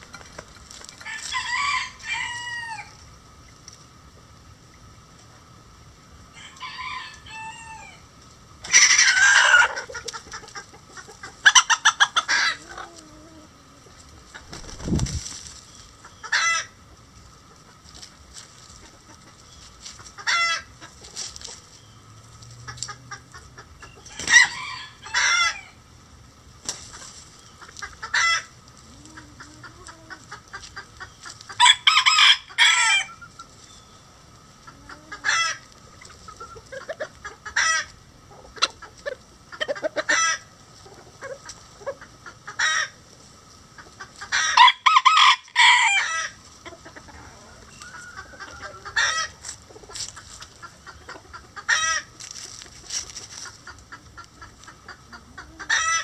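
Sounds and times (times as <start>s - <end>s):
chickens clucking: 0.0s - 56.0s
rooster crowing: 1.0s - 3.0s, 6.3s - 8.0s, 24.1s - 25.8s, 31.6s - 33.2s, 44.4s - 46.4s, 47.4s - 49.4s.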